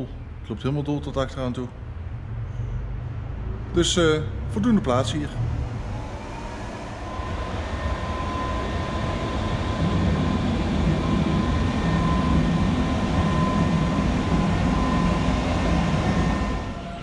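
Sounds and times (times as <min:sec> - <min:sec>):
vehicle rumble: 0:00.0 - 0:17.0
constant high hum: 0:04.6 - 0:17.0.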